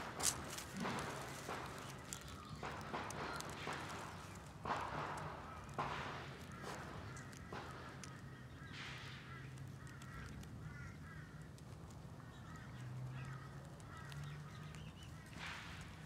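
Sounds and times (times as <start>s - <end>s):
cat chewing grass: 0.0s - 8.2s.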